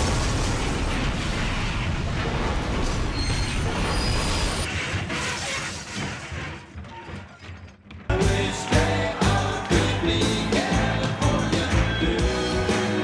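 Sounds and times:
debris shattering: 0:00.0 - 0:06.3
crash and explosion: 0:00.0 - 0:06.6.

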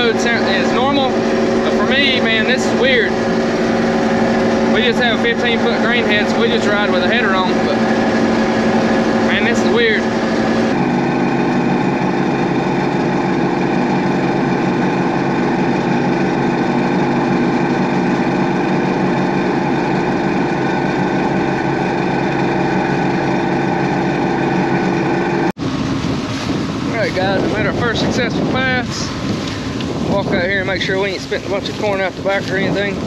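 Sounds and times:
combine engine and machinery hum: 0:00.0 - 0:33.0.

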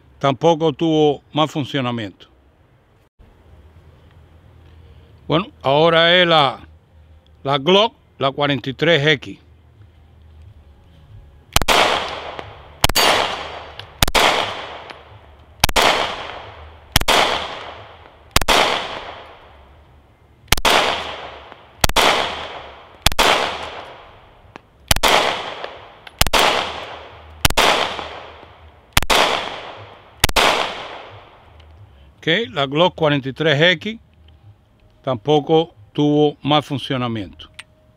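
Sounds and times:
pistol shots with echo: 0:11.5 - 0:19.6, 0:20.5 - 0:24.2, 0:24.9 - 0:31.4.

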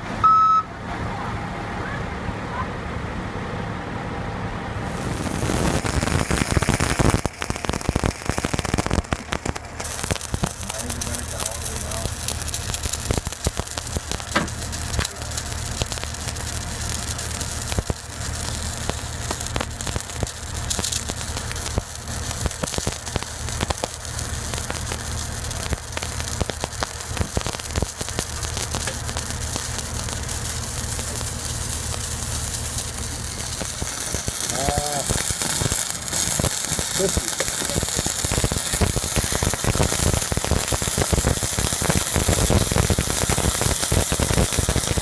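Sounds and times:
low hum: 0:04.1 - 0:37.0
welding arc crackling: 0:04.8 - 0:45.0.

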